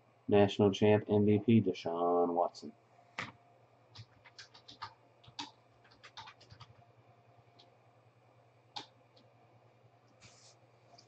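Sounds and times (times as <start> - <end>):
faint keyboard typing: 3.2 - 7.8, 8.7 - 9.3.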